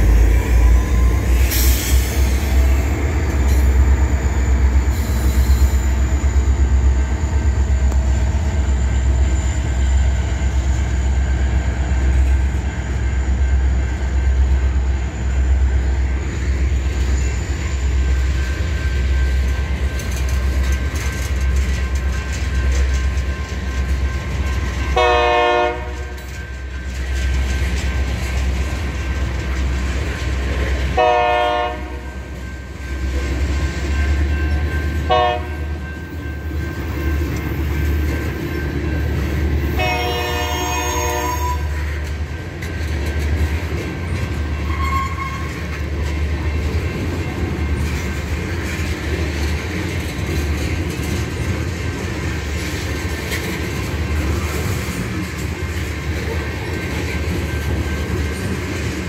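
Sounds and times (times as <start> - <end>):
freight cars rumbling on rails: 0.0 - 59.0
train horn blasts: 24.9 - 26.3, 30.9 - 32.3, 35.0 - 35.8, 39.7 - 41.9.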